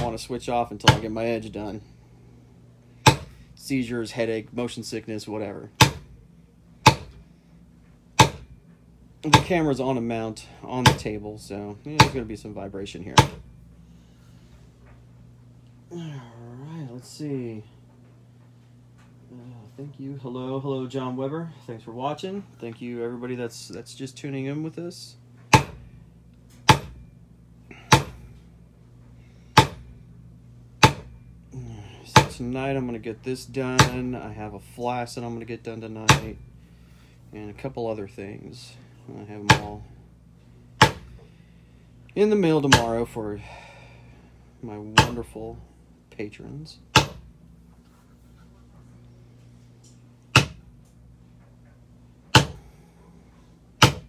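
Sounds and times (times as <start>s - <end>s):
maul striking leather stamping tool: 0.0s - 0.2s, 0.8s - 1.2s, 3.0s - 3.4s, 5.8s - 6.1s, 6.8s - 7.2s, 8.2s - 8.6s, 9.2s - 9.7s, 10.8s - 11.2s, 12.0s - 12.3s, 13.1s - 13.5s, 25.5s - 25.9s, 26.6s - 27.1s, 27.7s - 28.3s, 29.5s - 29.9s, 30.8s - 31.2s, 32.1s - 32.4s, 33.7s - 34.2s, 36.1s - 36.4s, 39.4s - 39.8s, 40.8s - 41.2s, 42.7s - 43.0s, 44.9s - 45.3s, 46.9s - 47.3s, 50.3s - 50.7s, 52.3s - 52.7s, 53.8s - 54.0s.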